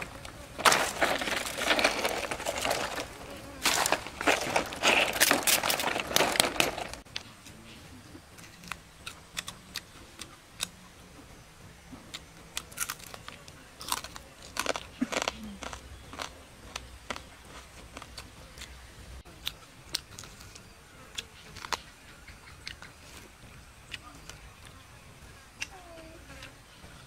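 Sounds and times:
chewing with sharp crunches: 0:00.0 - 0:10.8, 0:12.0 - 0:24.8
mouth clicks: 0:08.4 - 0:10.8.

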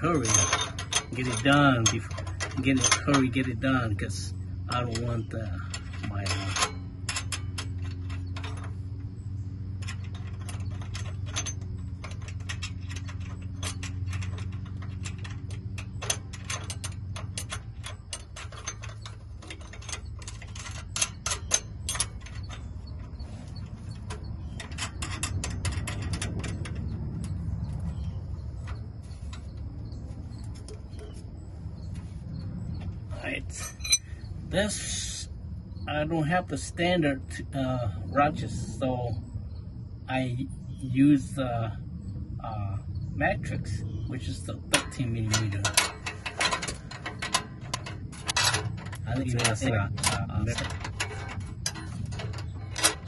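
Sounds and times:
metal clamp clicks and rattles: 0:00.0 - 0:32.0, 0:33.6 - 0:34.1, 0:44.6 - 0:53.0
low steady hum: 0:00.0 - 0:53.0.

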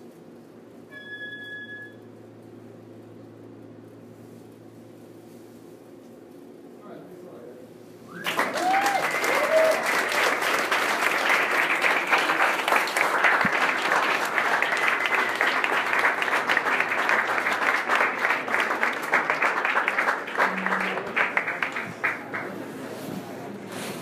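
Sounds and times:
audience applauding: 0:08.1 - 0:23.0.

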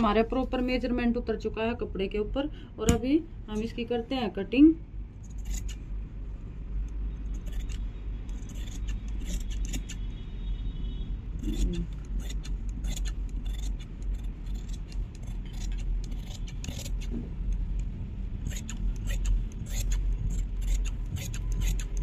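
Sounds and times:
steady low hum: 0:00.0 - 0:22.0
shears snipping cloth: 0:11.4 - 0:17.2, 0:18.4 - 0:22.0.

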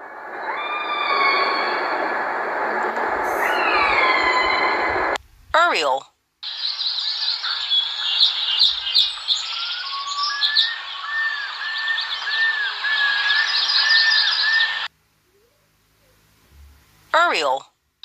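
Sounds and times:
birds chirping and trilling: 0:00.4 - 0:02.0, 0:03.4 - 0:04.9, 0:06.4 - 0:15.5
arching whistled notes: 0:03.4 - 0:05.0, 0:06.4 - 0:14.9
steady hiss: 0:06.2 - 0:17.2.

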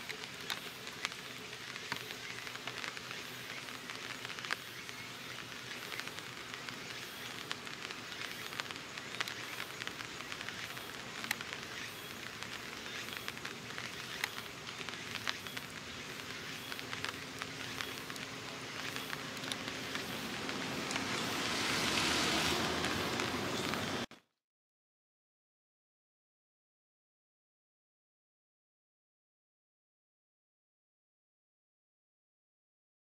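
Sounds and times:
small crackles: 0:00.0 - 0:24.2
steady outdoor noise: 0:00.0 - 0:24.2.

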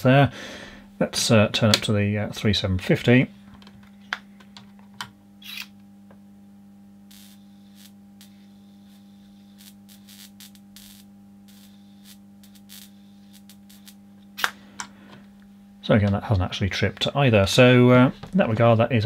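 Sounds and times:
high-voltage tester humming: 0:05.4 - 0:15.9
faint spark crackles: 0:07.1 - 0:14.5.

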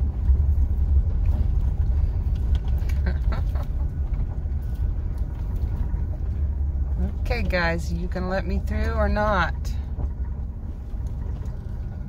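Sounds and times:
engine and road rumble: 0:00.0 - 0:12.0.

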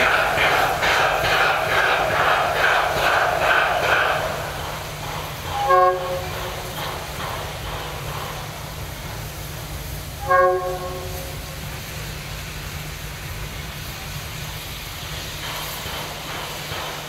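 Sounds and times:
locomotive steam rushing: 0:00.0 - 0:17.0
steam locomotive whistle blasts: 0:05.5 - 0:06.3, 0:10.2 - 0:11.5.

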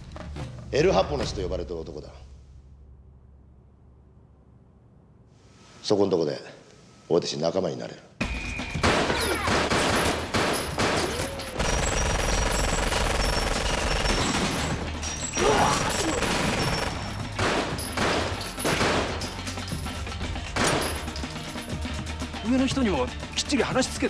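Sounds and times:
single gunshots: 0:08.8 - 0:12.6, 0:15.7 - 0:19.2
automatic gunfire: 0:08.8 - 0:14.8, 0:15.7 - 0:19.2.

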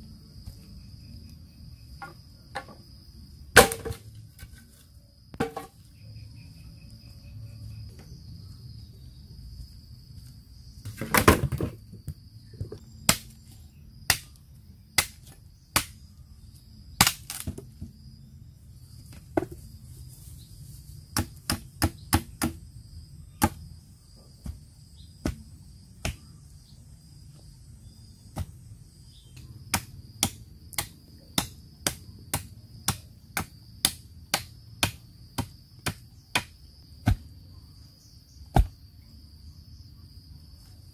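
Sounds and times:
insects droning: 0:00.0 - 0:40.9
machete chopping sapling: 0:03.5 - 0:04.1, 0:13.0 - 0:16.1, 0:17.0 - 0:17.8, 0:21.1 - 0:22.6, 0:23.4 - 0:23.7, 0:24.4 - 0:24.6, 0:25.2 - 0:26.3, 0:28.3 - 0:28.6, 0:29.3 - 0:37.3, 0:38.5 - 0:38.8.

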